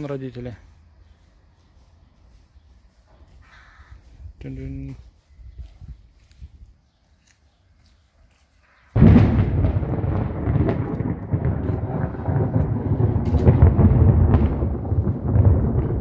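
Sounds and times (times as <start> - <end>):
thunder crack and rumble: 9.0 - 16.0.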